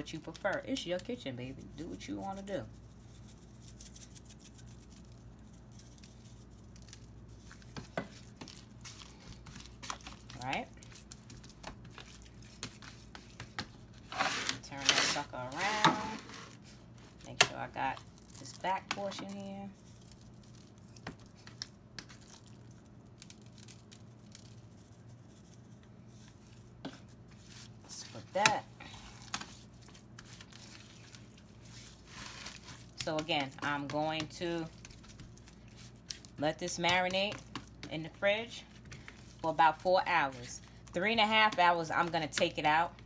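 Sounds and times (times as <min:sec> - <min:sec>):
hands patting and rubbing meat: 0:00.0 - 0:14.0, 0:17.1 - 0:42.8
low steady hum: 0:00.0 - 0:43.0.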